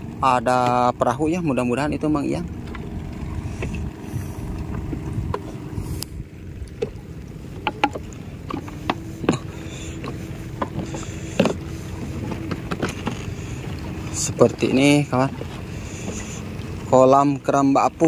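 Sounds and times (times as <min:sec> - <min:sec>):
motorboat engine humming: 0:00.0 - 0:18.0
short knocks and clicks: 0:07.6 - 0:11.6.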